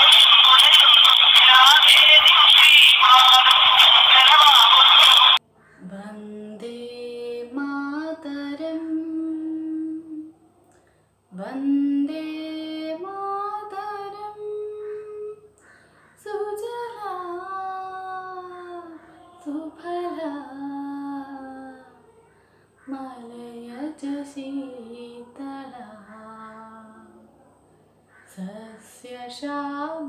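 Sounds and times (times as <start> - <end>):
woman singing unaccompanied: 5.8 - 10.4, 11.3 - 15.6, 16.2 - 22.1, 22.9 - 27.3, 28.3 - 30.0.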